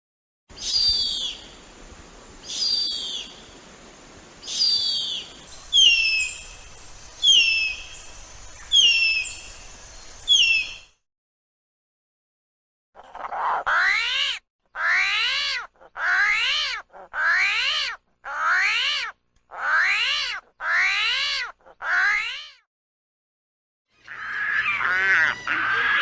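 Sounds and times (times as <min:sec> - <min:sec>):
armadillo squealing: 0:13.2 - 0:22.4, 0:24.0 - 0:26.0.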